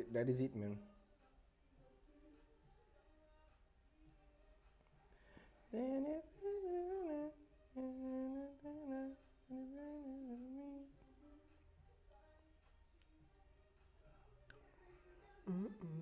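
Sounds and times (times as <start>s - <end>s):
man humming a tune: 5.7s - 11.0s, 15.4s - 16.0s.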